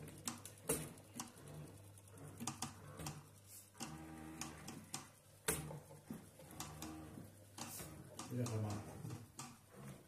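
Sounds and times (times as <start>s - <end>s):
light clicks and knocks: 7.6s - 10.0s.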